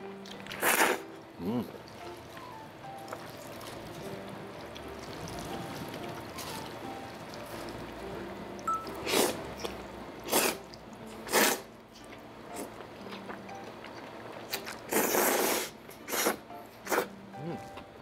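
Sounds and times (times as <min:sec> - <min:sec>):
person slurping noodles: 0:00.5 - 0:01.7, 0:09.0 - 0:09.4, 0:10.3 - 0:10.6, 0:11.3 - 0:11.7, 0:14.9 - 0:17.1.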